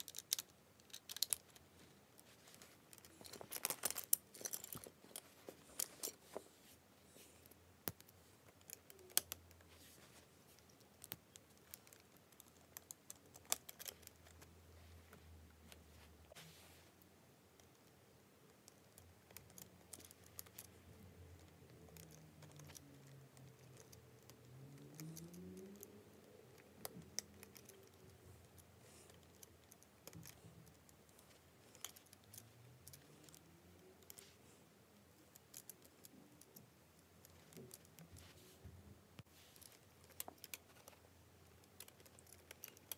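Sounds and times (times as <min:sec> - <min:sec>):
plastic parts clicking: 0:00.0 - 0:06.2, 0:39.6 - 0:42.9.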